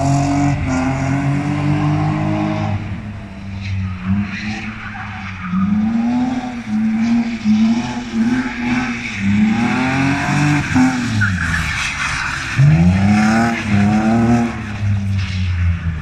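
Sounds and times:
tyres squealing on asphalt: 1.9s - 16.0s
car engine revving hard: 12.5s - 15.0s.

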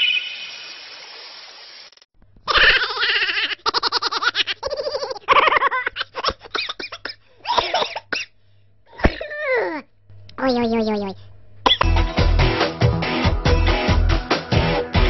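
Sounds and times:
people talking: 10.4s - 11.2s.

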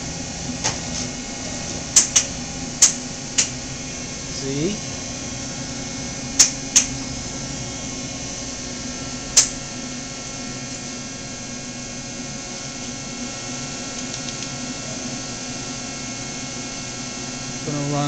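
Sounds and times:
machine humming with steady tones: 0.0s - 18.0s
sharp clicks: 6.4s - 6.9s, 14.0s - 14.5s.

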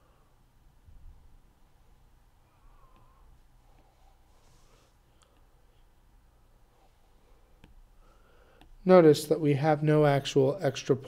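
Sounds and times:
stylus tapping drawing tablet: 7.6s - 7.8s.

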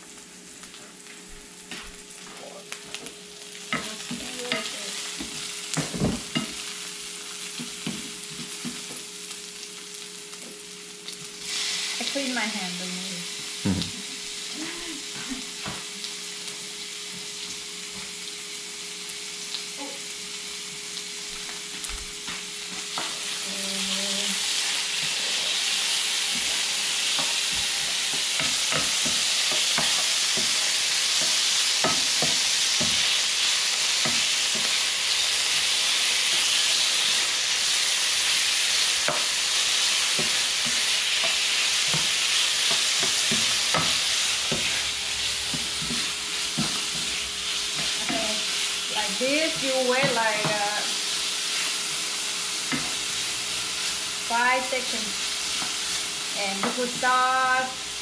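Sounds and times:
meat sizzling in a pan: 0.0s - 58.0s
spatula scraping and tapping: 40.2s - 44.8s, 45.4s - 48.2s, 52.7s - 53.0s.

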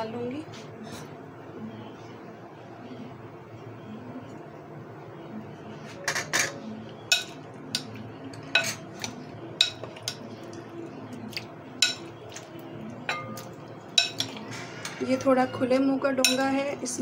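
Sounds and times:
metal spoon clinking against bowls: 6.1s - 10.3s, 11.8s - 14.4s, 15.1s - 16.8s.

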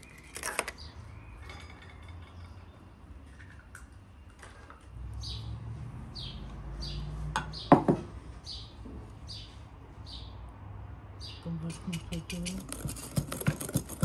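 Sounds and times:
kitchenware knocking on wooden table: 7.4s - 8.1s.

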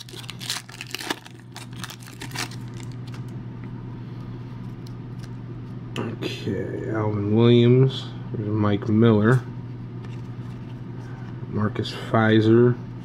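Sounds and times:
foil wrapper crinkling and tearing: 0.0s - 3.3s
low steady hum: 0.0s - 13.0s.

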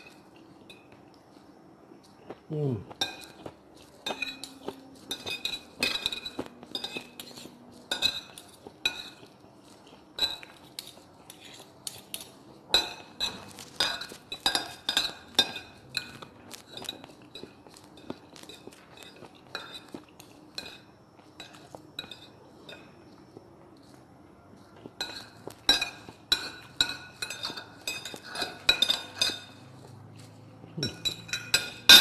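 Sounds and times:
cutlery scraping ceramic plate: 4.0s - 9.3s, 10.2s - 22.9s, 25.0s - 30.2s, 30.8s - 32.0s.

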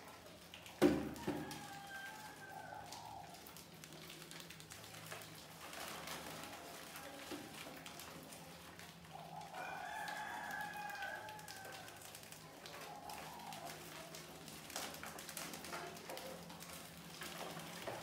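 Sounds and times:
rats scratching on plastic bucket: 0.0s - 18.0s
rooster crowing: 1.0s - 3.3s, 9.4s - 12.1s.

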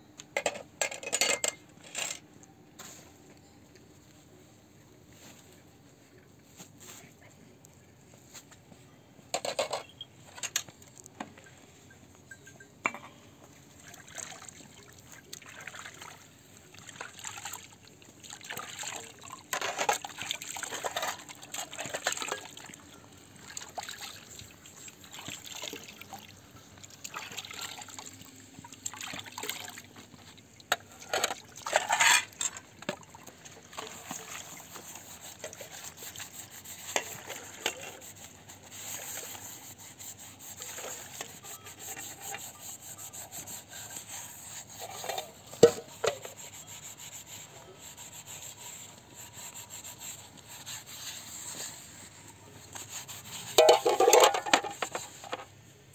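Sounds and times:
metal bowls and lid clinking: 0.4s - 2.3s, 31.0s - 32.6s, 53.5s - 55.4s.

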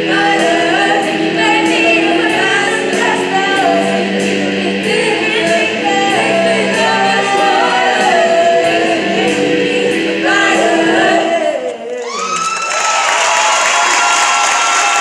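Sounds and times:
women's choir singing in harmony: 0.0s - 12.2s
audience cheering and applause: 11.9s - 15.0s.

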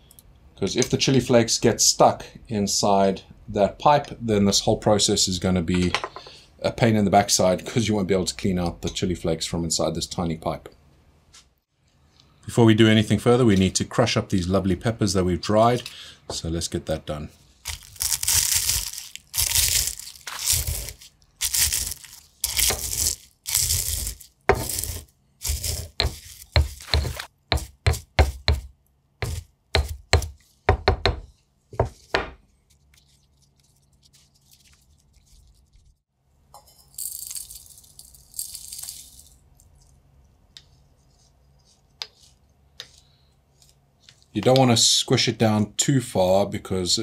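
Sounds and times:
pestle crushing dry chillies: 17.7s - 31.1s.

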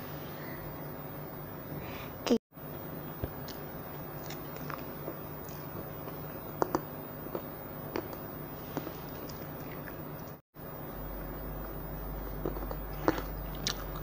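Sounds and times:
low hum: 0.0s - 14.0s
child chewing: 3.3s - 10.4s, 12.3s - 14.0s.

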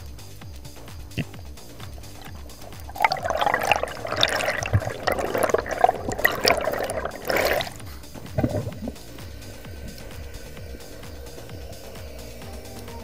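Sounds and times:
bubbling rushing water underwater: 1.8s - 11.7s.

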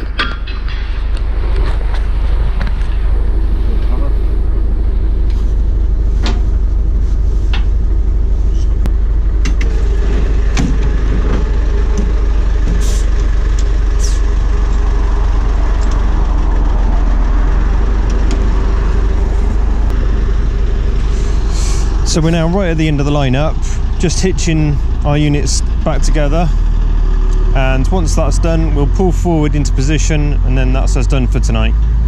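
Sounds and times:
metallic clanks: 0.0s - 1.8s
heavy engine drone: 0.0s - 32.0s
air hissing: 12.7s - 13.2s.

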